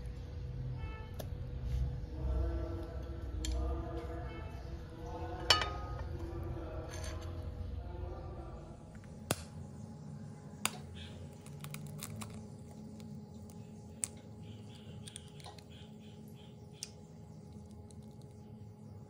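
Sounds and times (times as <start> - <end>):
faint steady hum: 0.0 - 19.0
egg shell cracking: 10.6 - 15.8, 16.8 - 18.4
shell crackling: 10.6 - 15.9.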